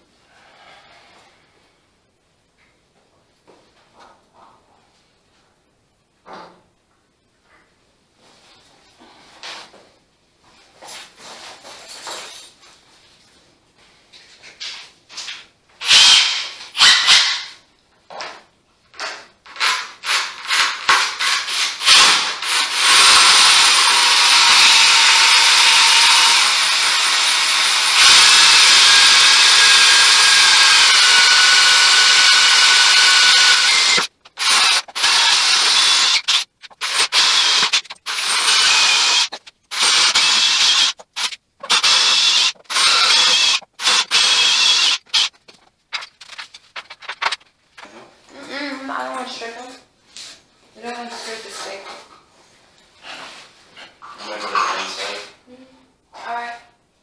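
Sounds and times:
handheld power tool running: 0:15.8 - 0:17.1, 0:19.6 - 0:45.3
clicks and scrapes: 0:45.0 - 0:48.1.

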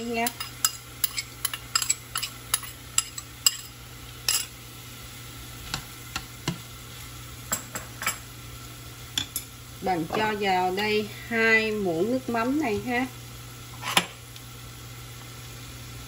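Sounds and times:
chopsticks clicking on bowl and pan: 0:00.0 - 0:03.7
frying sizzle: 0:00.0 - 0:16.0.

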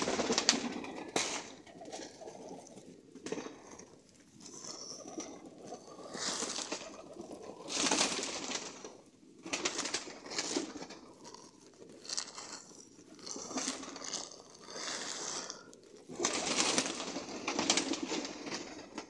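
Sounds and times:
wing flutters: 0:00.0 - 0:02.2, 0:04.5 - 0:11.1, 0:14.9 - 0:19.0
birds pecking and shuffling: 0:00.0 - 0:19.0
pigeons cooing: 0:00.0 - 0:19.0.

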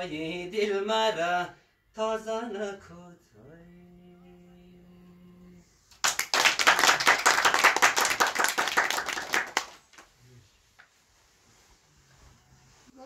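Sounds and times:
people clapping: 0:05.9 - 0:10.1.

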